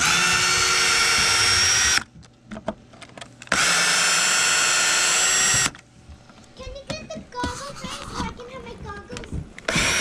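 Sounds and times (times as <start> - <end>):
cordless drill running: 0.0 - 2.1, 3.5 - 5.8, 9.7 - 10.0.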